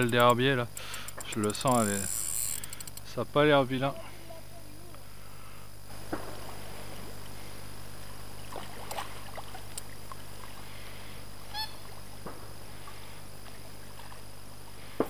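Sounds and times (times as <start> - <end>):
fish splashing in water: 8.3 - 10.7
bird-like call: 11.5 - 11.8.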